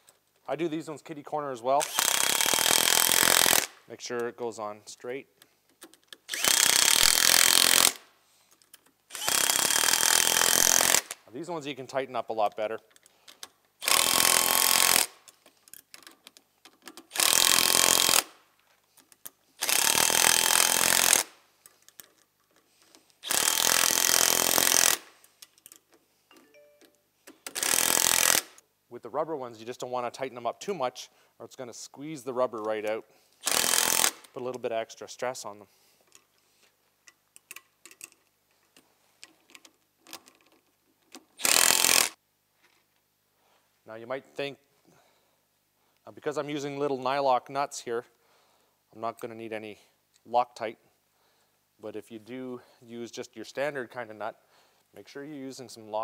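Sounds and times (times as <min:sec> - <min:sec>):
clicks of handling nuts and bolts: 0:04.9 - 0:06.4, 0:08.4 - 0:09.1, 0:12.4 - 0:13.8, 0:15.2 - 0:17.2, 0:18.5 - 0:19.5, 0:21.6 - 0:23.3, 0:25.1 - 0:27.8, 0:32.5 - 0:33.4, 0:35.9 - 0:41.4
metallic clicks of tool on bolts: 0:15.2 - 0:17.6, 0:24.8 - 0:28.6, 0:37.0 - 0:38.4
cordless power driver running: 0:19.6 - 0:21.3.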